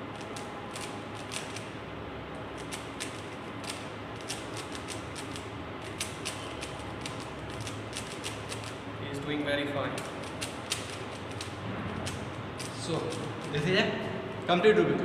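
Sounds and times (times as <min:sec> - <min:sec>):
steady background hiss: 0:00.0 - 0:15.0
puzzle cube layers clicking: 0:02.7 - 0:08.7.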